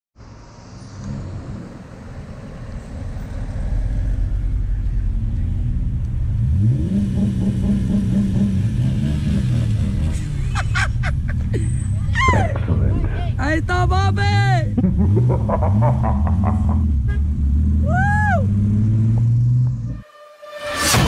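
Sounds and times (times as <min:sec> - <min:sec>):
vehicle engine revving: 0:00.2 - 0:20.0.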